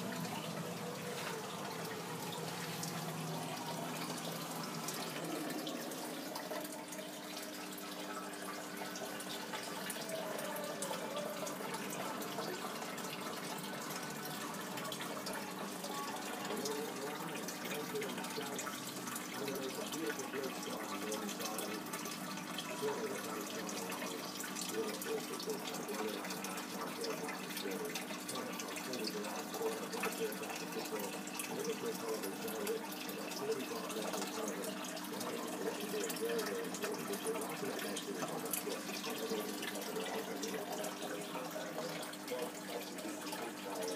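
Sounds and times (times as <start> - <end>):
dripping ticks: 0.0 - 43.9
faint steady hum: 0.0 - 43.9
water trickling and splashing: 0.0 - 43.9.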